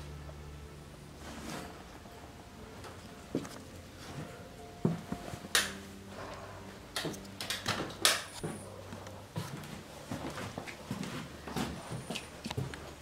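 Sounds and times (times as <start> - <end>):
footsteps on wooden floorboards: 3.3 - 5.4, 7.8 - 13.0.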